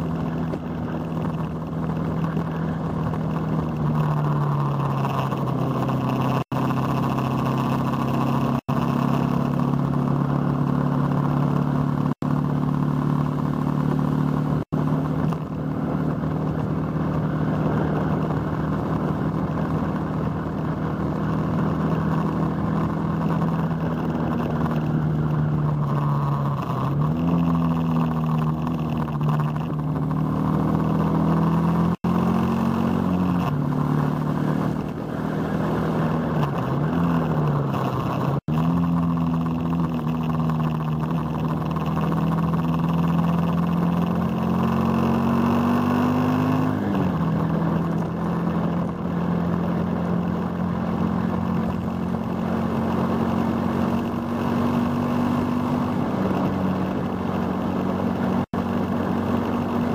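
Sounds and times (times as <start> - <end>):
motorcycle engine running: 0.0 - 59.9
wind and road noise: 0.0 - 59.9.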